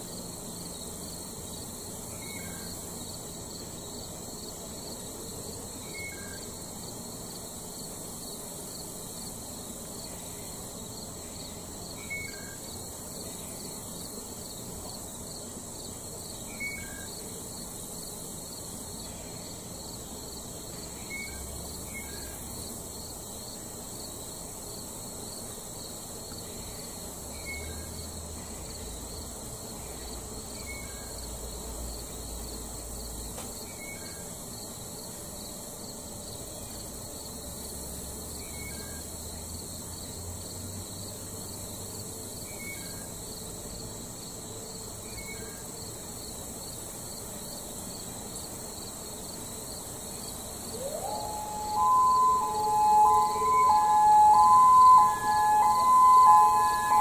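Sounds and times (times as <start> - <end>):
insects trilling: 0.0 - 57.0
two-note bird chirp: 50.7 - 57.0.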